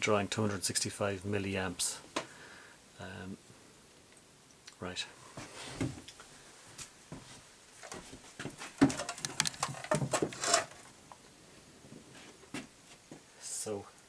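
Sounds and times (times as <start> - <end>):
handling clicks and knocks: 8.7 - 10.9.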